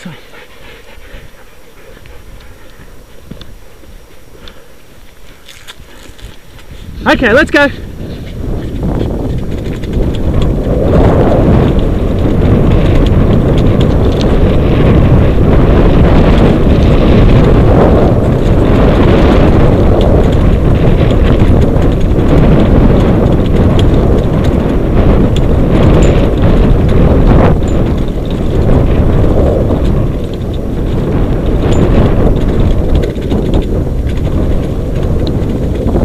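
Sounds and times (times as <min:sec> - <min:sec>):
rig rolling over dirt trail: 0:00.0 - 0:36.0
wind buffeting microphone: 0:00.0 - 0:36.0
faint clicks: 0:04.3 - 0:06.7.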